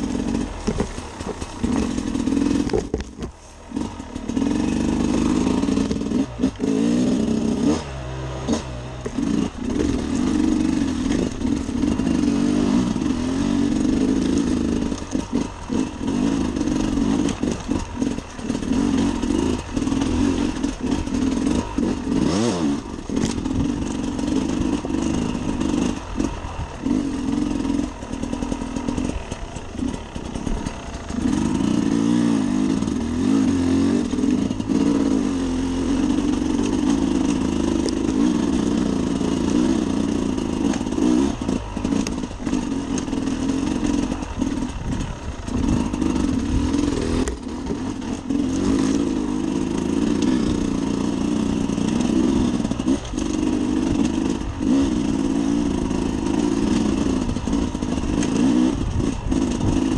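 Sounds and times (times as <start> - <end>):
motorcycle engine revving: 0.0 - 59.9
knocks and clatter: 0.6 - 3.4.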